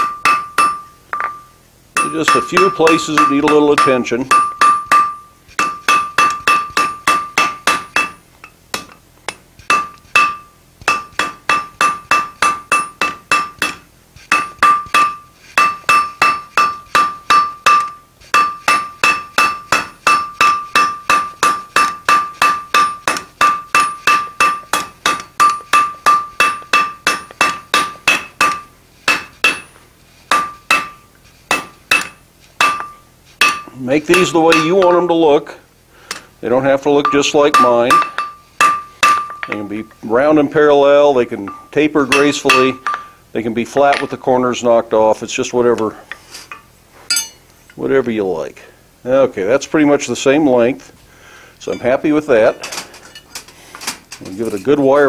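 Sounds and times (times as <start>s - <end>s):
hammer striking hot metal on anvil: 0.0s - 35.1s, 37.0s - 40.0s, 41.4s - 44.2s, 46.5s - 47.4s.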